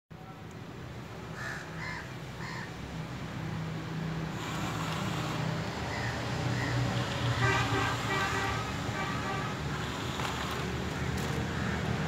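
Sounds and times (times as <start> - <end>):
crow cawing: 1.3 - 2.8, 5.9 - 6.8, 10.9 - 12.0.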